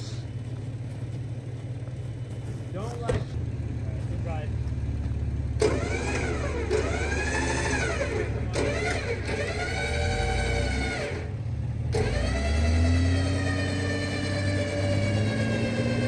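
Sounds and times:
car engine revving: 0.0s - 16.0s
wheels spinning in snow: 3.8s - 16.0s.

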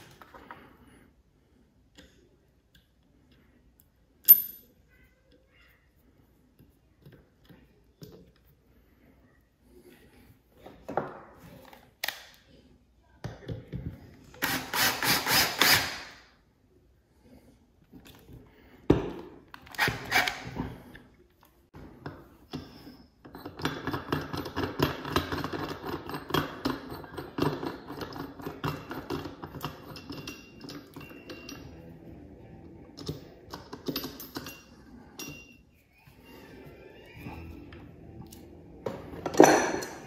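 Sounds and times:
metal parts clinking and rattling: 4.2s - 4.7s, 23.4s - 32.1s, 33.0s - 35.6s.

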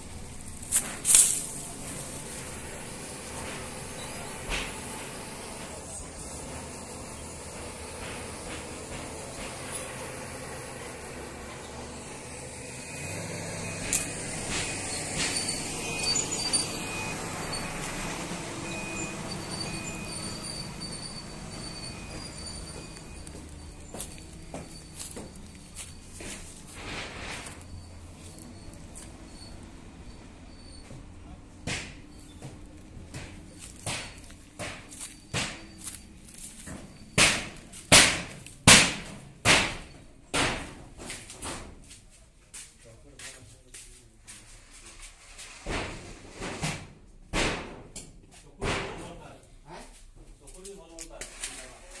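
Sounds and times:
bulldozer diesel engine running: 0.0s - 40.3s
footsteps crunching: 22.5s - 28.5s, 32.5s - 38.6s
sharp knocks: 31.6s - 35.7s, 36.7s - 41.7s.

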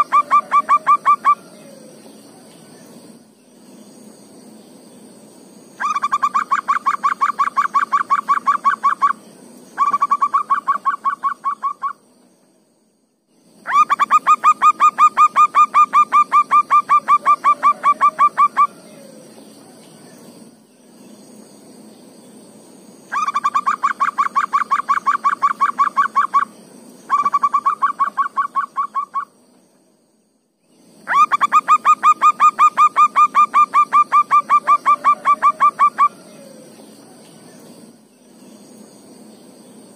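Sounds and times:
dove cooing: 0.0s - 2.0s, 13.7s - 19.4s, 31.1s - 37.3s.

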